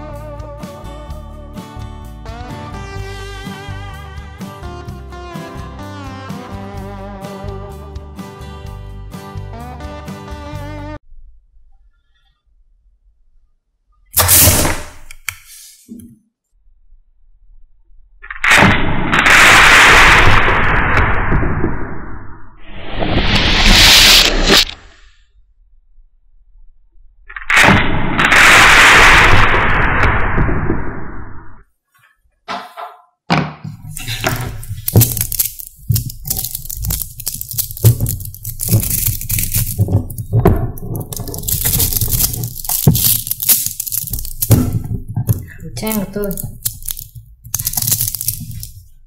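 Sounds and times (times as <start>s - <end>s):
magnetic balls clicking: 33.9s - 48.8s.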